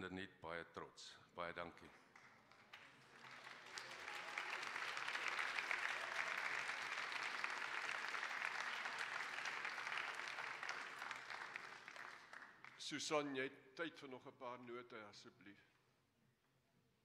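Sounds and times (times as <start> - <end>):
crowd applauding: 2.1 - 12.9.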